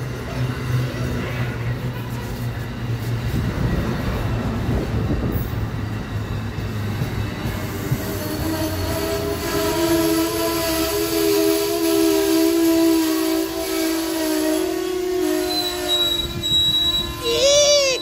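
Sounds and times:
train cars rolling past: 0.0s - 18.0s
metallic squeal of brakes: 7.7s - 18.0s.

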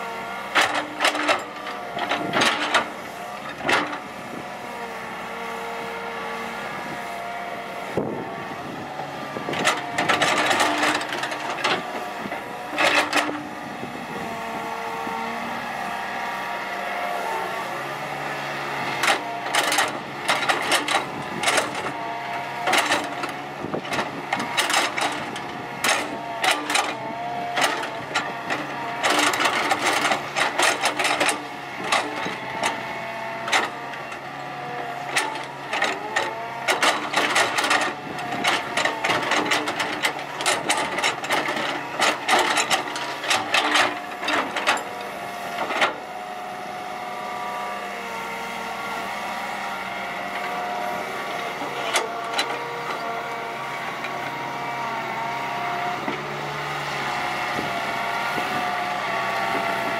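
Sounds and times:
excavator engine and hydraulic whine: 0.0s - 59.9s
excavator bucket clanks and knocks: 22.7s - 27.0s, 35.0s - 45.0s.

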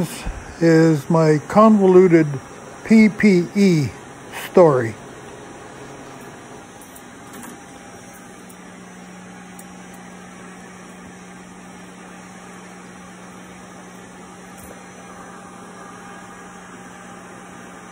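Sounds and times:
airflow hiss: 0.0s - 4.9s
blower low hum: 0.0s - 17.9s.

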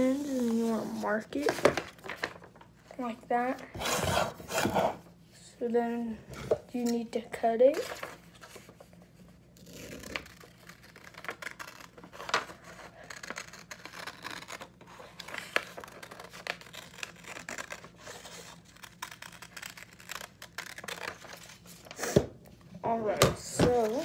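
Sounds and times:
paper rustling: 0.2s - 2.8s
scissors snipping paper: 9.8s - 21.2s.

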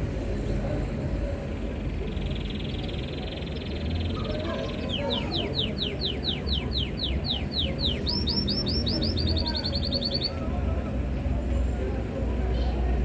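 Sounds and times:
canary singing trills and whistles: 2.0s - 10.4s.

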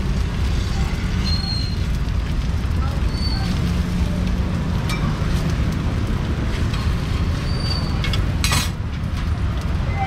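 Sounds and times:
low engine rumble: 0.0s - 10.0s.

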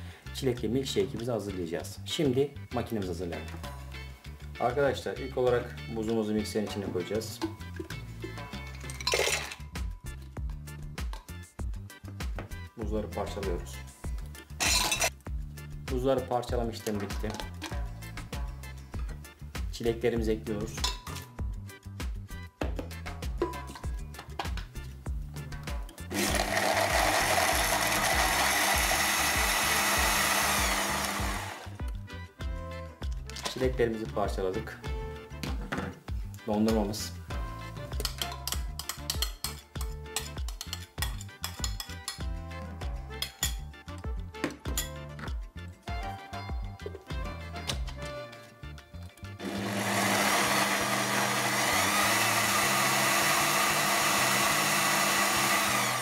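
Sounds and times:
blender whirring: 26.1s - 31.8s, 49.4s - 56.0s.

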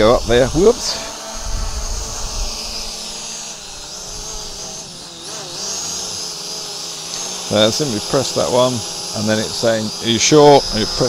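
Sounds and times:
quadcopter propellers whirring: 0.0s - 11.0s.

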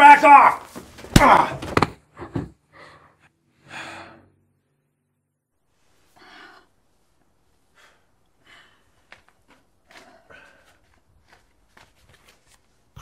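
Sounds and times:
faint gasping breaths: 9.8s - 11.0s.

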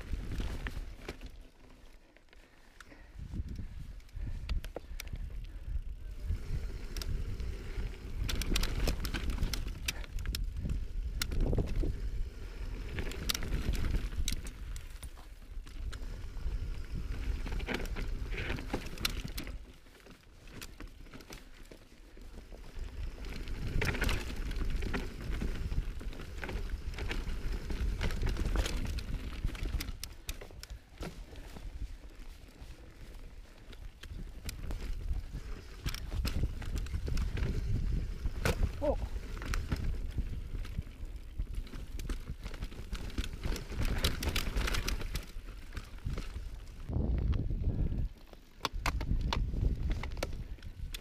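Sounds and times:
bike tyres rattling over rocks: 0.0s - 51.0s
wind buffeting microphone: 3.1s - 14.8s, 33.9s - 48.2s, 48.8s - 51.0s.

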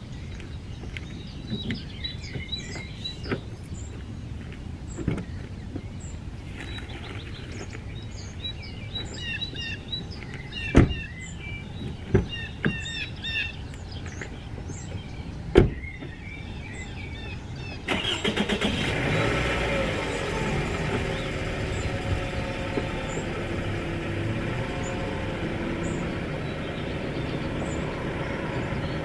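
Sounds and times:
birds chirping: 0.0s - 29.0s
car door shutting: 10.7s - 11.1s
car engine starting and running: 17.9s - 29.0s.

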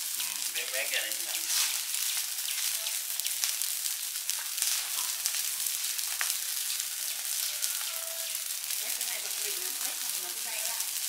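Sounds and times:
fire hissing and crackling: 0.0s - 11.0s
fire popping: 0.0s - 11.0s.

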